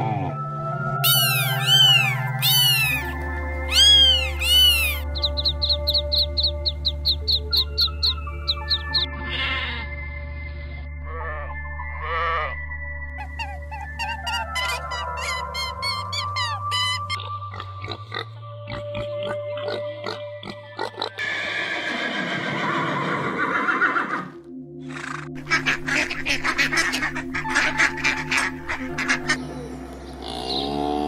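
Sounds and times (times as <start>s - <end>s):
background music: 0.0s - 31.0s
long call with bending pitch: 1.0s - 3.1s
farm animal sounds: 1.0s - 12.6s, 13.2s - 22.6s, 25.0s - 29.4s, 30.2s - 31.0s.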